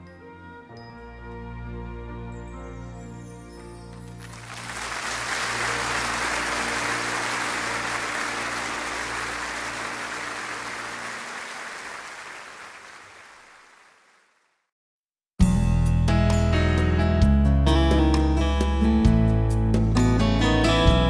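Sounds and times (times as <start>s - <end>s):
audience applause: 4.1s - 14.4s.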